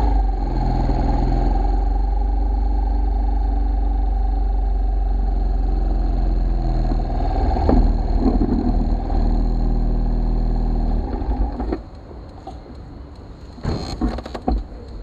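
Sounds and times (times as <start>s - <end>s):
rattly clatter: 7.6s - 9.3s.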